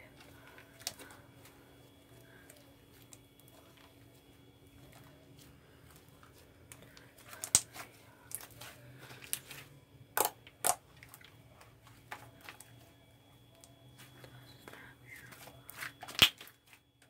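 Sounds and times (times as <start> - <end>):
wet clicks and pops: 7.4 - 7.7, 16.0 - 16.5.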